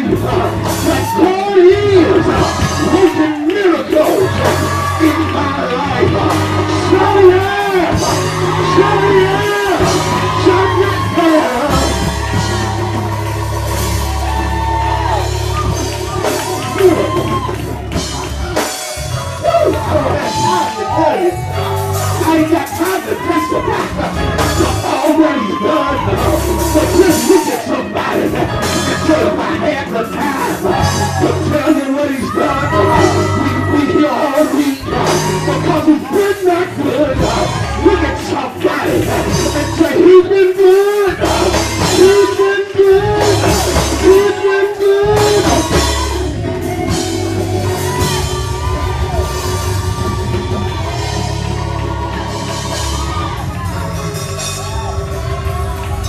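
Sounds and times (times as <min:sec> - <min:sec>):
pulsing bass line: 0:00.0 - 0:03.2, 0:04.1 - 0:22.4, 0:36.8 - 0:40.0, 0:41.1 - 0:56.0
man singing into microphone: 0:00.0 - 0:12.1, 0:22.2 - 0:46.2
drum kit: 0:00.0 - 0:56.0
gospel band playing: 0:00.0 - 0:56.0.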